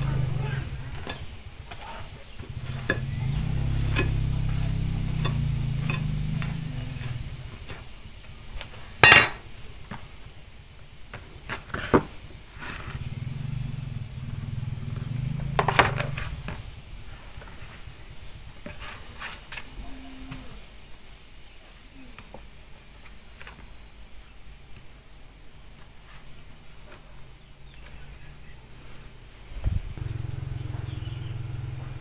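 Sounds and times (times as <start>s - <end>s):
low drone: 2.5s - 7.7s
sharp metallic clinks: 2.8s - 7.5s.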